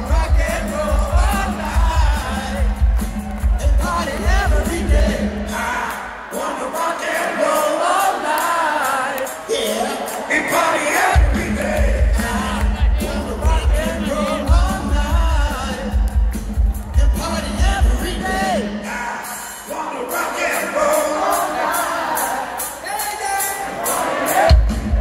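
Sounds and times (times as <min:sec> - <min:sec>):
live rock band playing: 0:00.0 - 0:05.8, 0:08.9 - 0:19.6
crowd singing along: 0:00.0 - 0:16.0, 0:17.0 - 0:25.0.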